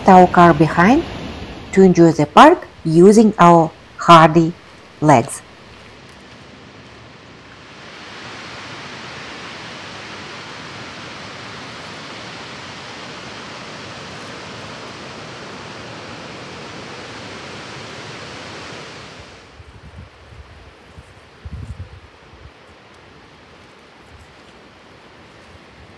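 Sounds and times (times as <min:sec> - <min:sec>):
water rushing over rapids: 0:00.0 - 0:01.7, 0:02.4 - 0:19.6.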